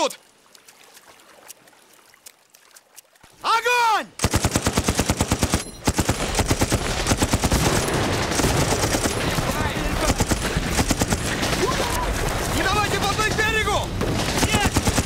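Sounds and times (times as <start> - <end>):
machine gun fire: 4.2 - 15.0.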